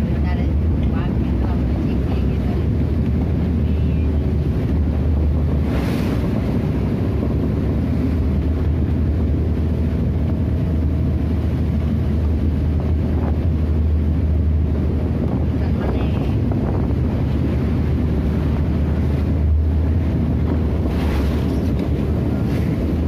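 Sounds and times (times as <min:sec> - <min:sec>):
boat engine drone: 0:00.0 - 0:23.0
waves rushing past: 0:00.0 - 0:23.0
wind buffeting microphone: 0:00.0 - 0:23.0
water splash: 0:04.4 - 0:08.8, 0:17.1 - 0:23.0.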